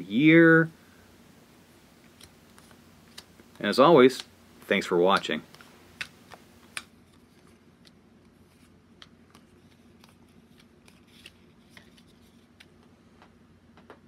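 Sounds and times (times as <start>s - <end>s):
low steady hum: 0.0s - 14.0s
cards clicking on wooden table: 5.2s - 6.9s.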